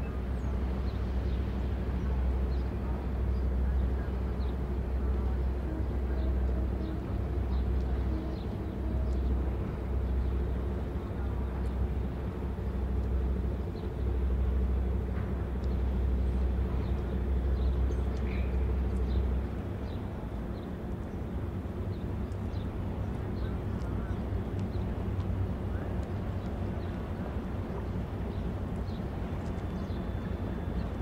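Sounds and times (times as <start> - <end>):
small birds chirping: 26.0 - 31.0.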